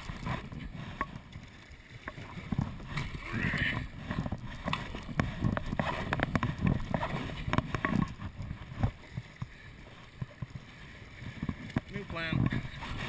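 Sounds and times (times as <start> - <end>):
paddle strokes splashing water: 0.0 - 13.0
sharp ticks and knocks: 4.1 - 9.6.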